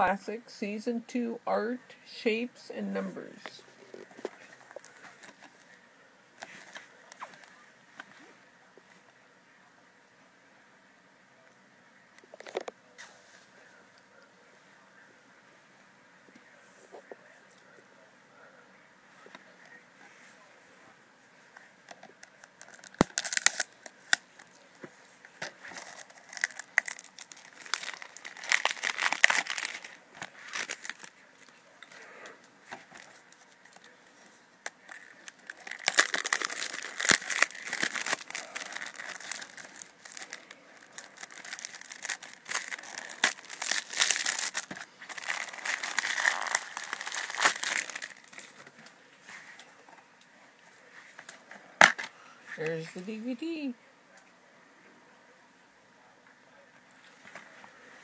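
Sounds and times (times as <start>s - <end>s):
shrink wrap crinkling and tearing: 6.4s - 7.6s, 22.0s - 24.7s, 25.3s - 48.7s.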